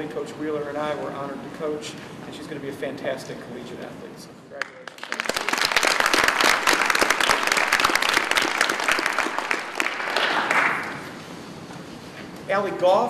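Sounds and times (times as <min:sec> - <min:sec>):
audience applauding: 0:04.6 - 0:11.1.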